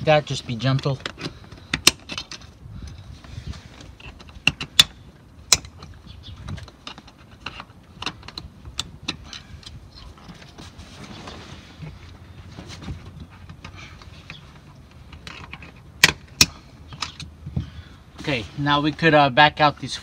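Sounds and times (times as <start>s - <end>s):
handling rustle: 9.2s - 15.8s.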